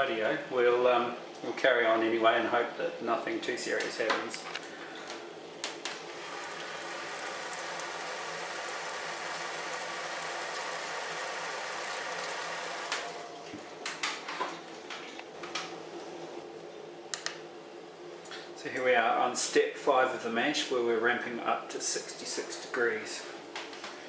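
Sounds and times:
faint pump hum: 0:00.0 - 0:24.0.

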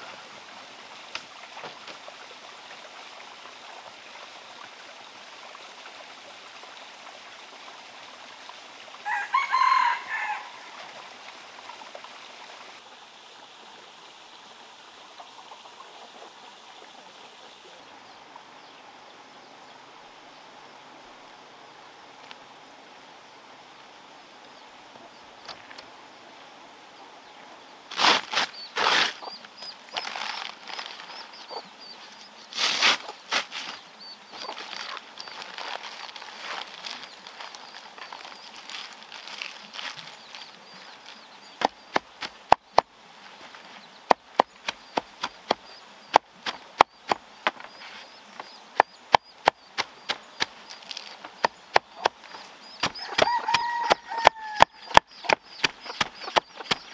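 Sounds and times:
leaves rustling: 0:00.0 - 0:12.9, 0:27.8 - 0:56.9
machete chopping on wooden block: 0:52.8 - 0:56.9.

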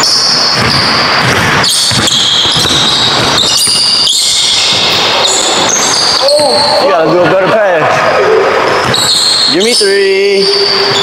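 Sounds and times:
basketball bouncing: 0:00.0 - 0:06.2, 0:08.8 - 0:09.6.

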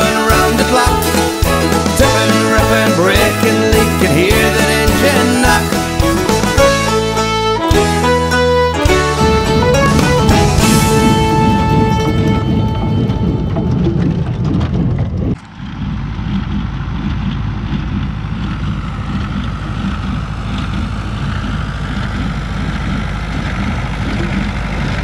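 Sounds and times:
music track: 0:00.0 - 0:14.8
baler machinery working: 0:00.0 - 0:25.0
tractor engine running: 0:00.0 - 0:25.0.

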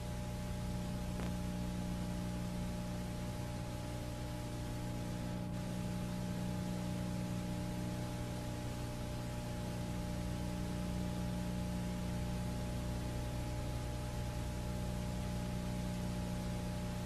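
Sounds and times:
low electrical hum: 0:00.0 - 0:17.0
tape hiss: 0:00.0 - 0:17.0.

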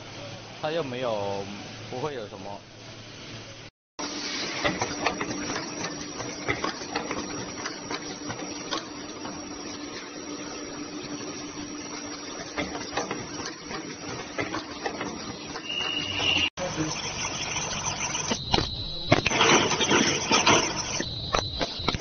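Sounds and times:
machine humming: 0:04.8 - 0:22.0.

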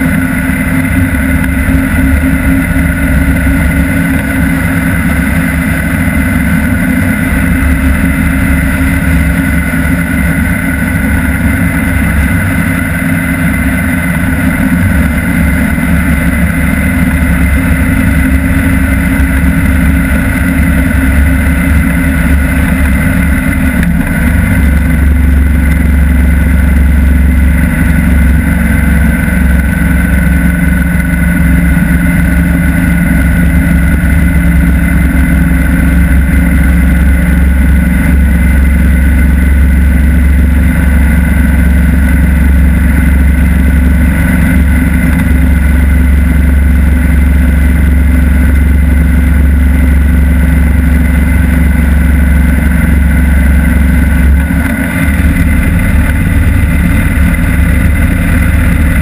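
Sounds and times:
motorcycle engine rumble: 0:00.0 - 0:59.0
wind rush on microphone: 0:00.0 - 0:59.0.

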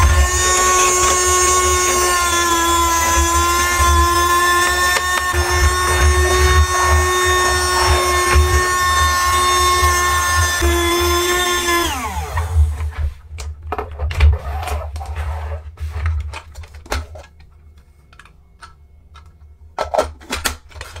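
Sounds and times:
small vacuum motor whining: 0:00.0 - 0:12.9
plastic clicks and knocks: 0:16.3 - 0:21.0.

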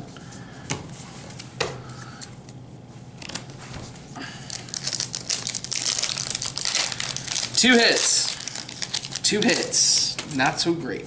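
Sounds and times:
foil wrapper crinkling: 0:04.4 - 0:10.2.

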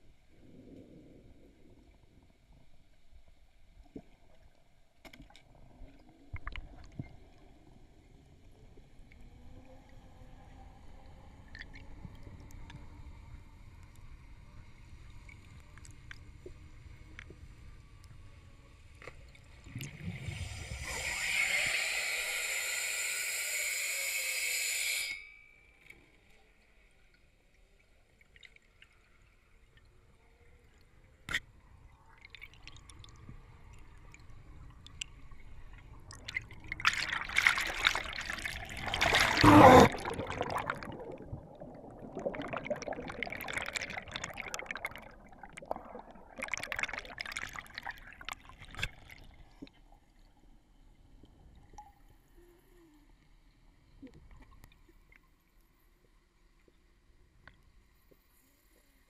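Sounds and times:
underwater air bubbles: 0:19.6 - 0:21.8, 0:32.2 - 0:49.7.

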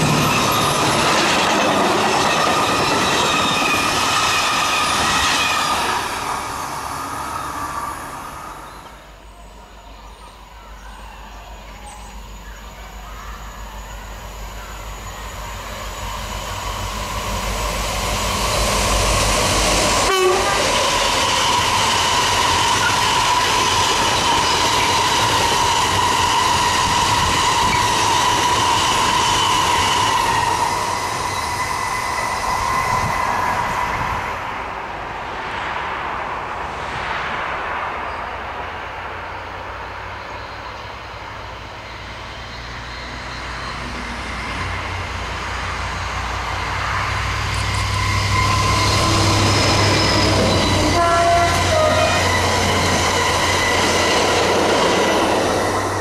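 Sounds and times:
high ringing from train wheels: 0:00.0 - 0:10.3, 0:11.6 - 0:34.1, 0:40.1 - 0:56.0
freight train wheels on rails: 0:00.0 - 0:56.0
short horn blasts: 0:20.0 - 0:20.7.

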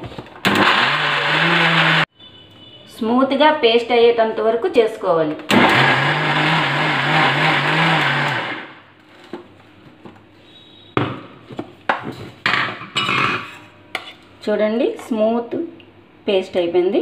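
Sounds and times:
mixer grinder motor humming: 0:00.4 - 0:02.1, 0:05.5 - 0:08.8.

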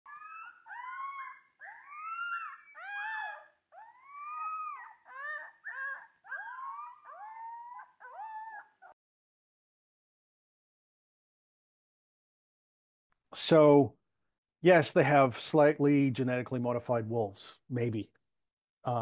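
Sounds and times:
wolf pups howling: 0:00.1 - 0:09.0.

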